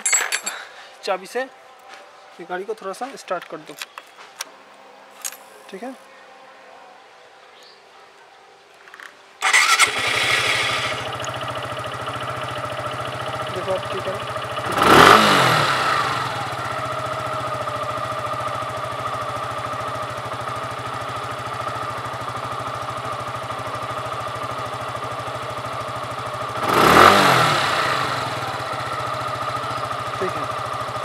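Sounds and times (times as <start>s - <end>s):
engine revving: 9.4s - 18.7s, 24.4s - 31.0s
motorcycle engine idling: 9.4s - 31.0s.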